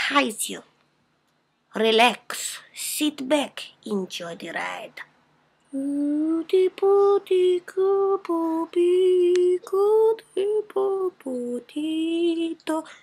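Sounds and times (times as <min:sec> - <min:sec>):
woman singing wordless tune: 0:05.7 - 0:13.0.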